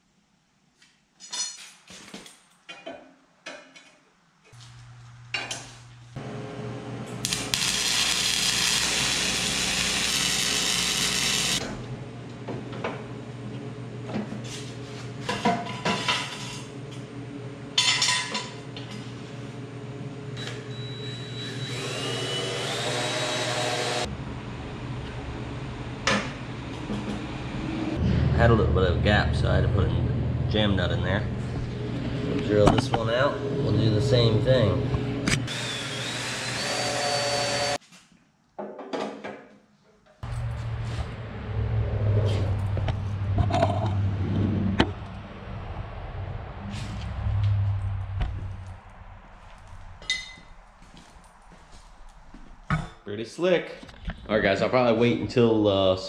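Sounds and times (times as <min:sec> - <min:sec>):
metal tools clinking: 0:01.2 - 0:01.9, 0:50.0 - 0:50.5
power tool running: 0:07.1 - 0:11.6, 0:20.5 - 0:24.1, 0:35.2 - 0:37.8
motor speeding up: 0:07.3 - 0:11.6, 0:41.0 - 0:49.8
steady low hum: 0:24.1 - 0:35.5, 0:40.2 - 0:53.0.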